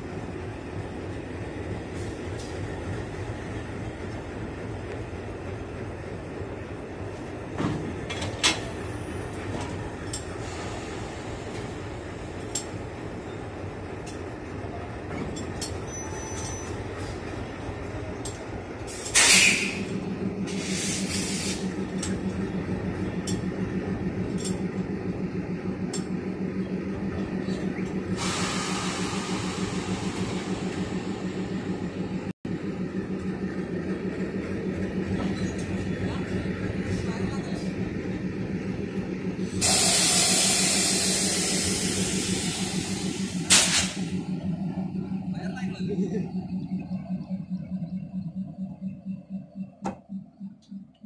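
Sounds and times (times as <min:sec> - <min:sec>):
diesel locomotive idling: 0:00.0 - 0:51.0
air hiss: 0:19.0 - 0:19.8, 0:39.6 - 0:44.0
steady pulsing drone: 0:44.2 - 0:51.0.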